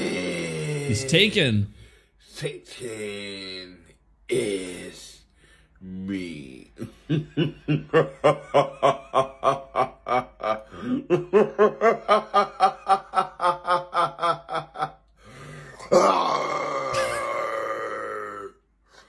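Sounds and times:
man laughing rhythmically: 6.8s - 15.2s.

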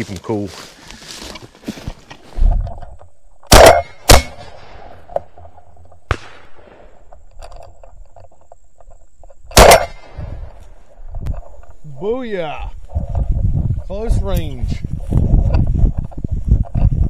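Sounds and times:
quieter sharp crack: 3.4s - 7.6s, 9.5s - 10.6s
shotgun shots: 3.5s - 5.1s, 6.0s - 7.0s, 9.5s - 10.4s.

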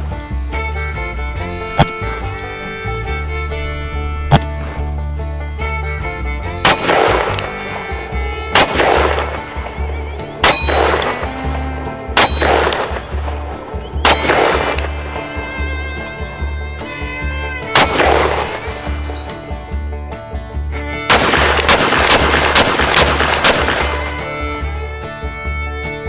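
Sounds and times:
background music with steady beat: 0.0s - 26.0s
revolver shots with ring: 6.7s - 7.6s, 8.5s - 9.6s, 10.4s - 11.3s, 12.2s - 13.3s, 14.0s - 15.3s, 17.7s - 19.3s.

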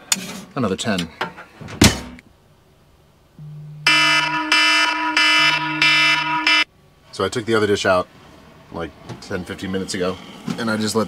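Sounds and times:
phone buzzing: 3.4s - 6.6s
phone alarm tone: 3.4s - 6.7s.

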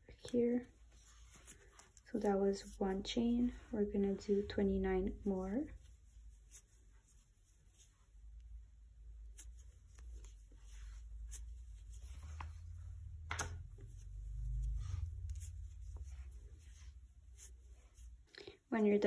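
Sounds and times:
yarn rustling and scraping: 0.0s - 18.3s
low handling rumble: 11.0s - 18.3s.

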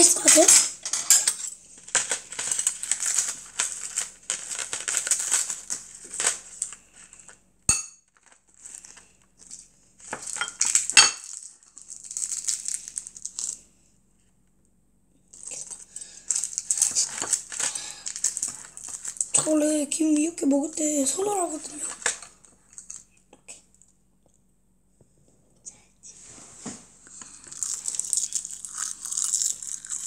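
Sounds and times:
utensils clinking on ceramic bowls: 0.0s - 1.6s, 7.7s - 8.0s, 10.1s - 11.3s.

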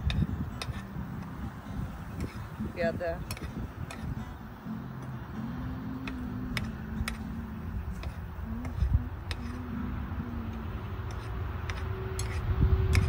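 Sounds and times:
low hum: 0.0s - 13.0s.

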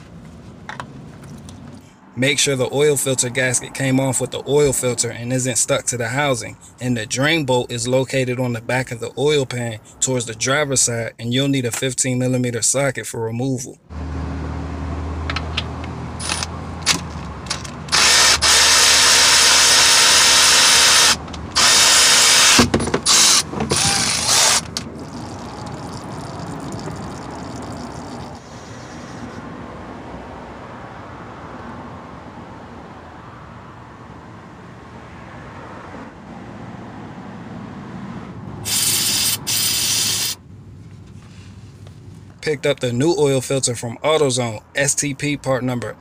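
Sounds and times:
electric ratchet spinning: 16.2s - 26.0s, 38.6s - 40.4s
oil draining: 24.4s - 28.5s.

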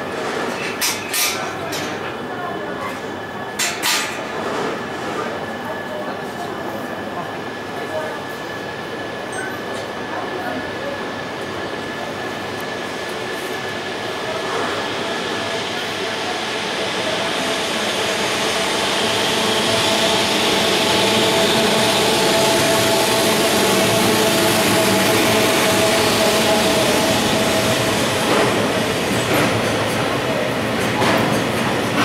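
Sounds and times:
train rolling noise: 0.0s - 32.0s
train electric whine: 14.6s - 29.7s.

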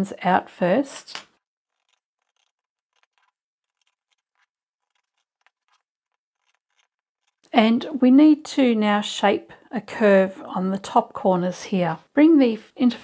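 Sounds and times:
scissors snipping fabric: 1.0s - 8.0s.

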